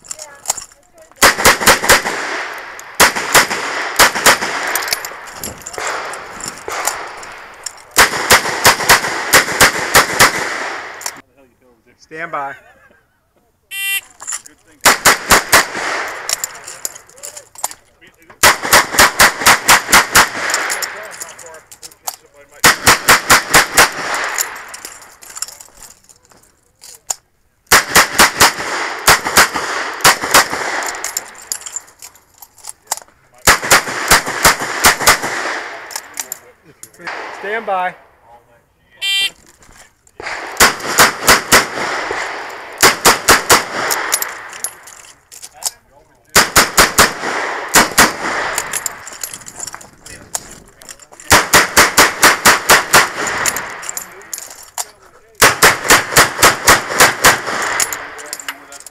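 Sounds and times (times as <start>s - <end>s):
revolver gunshots: 1.2s - 11.2s, 14.8s - 16.7s, 18.4s - 21.1s, 22.6s - 24.8s, 27.7s - 31.4s, 33.4s - 36.2s, 37.0s - 38.0s, 40.2s - 44.8s, 46.3s - 49.1s, 51.3s - 54.2s, 55.4s - 58.2s.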